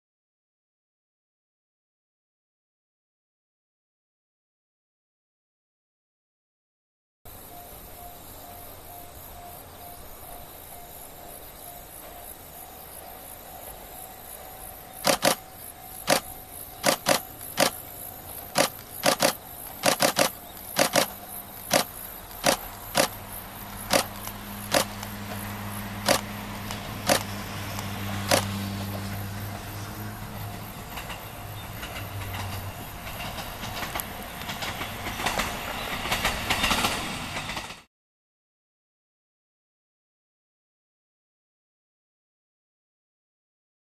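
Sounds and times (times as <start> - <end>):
diesel railcar engine hum: 7.3 - 37.8
rail and wheel noise: 7.3 - 37.9
sharp camera shutter clicks: 15.0 - 17.8, 18.5 - 23.2, 23.9 - 25.2, 26.0 - 28.6.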